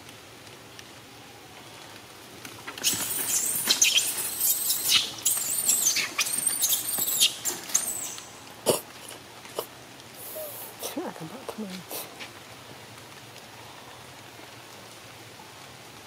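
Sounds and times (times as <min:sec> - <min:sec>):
high-pitched squeaky animal calls: 0:02.8 - 0:08.8.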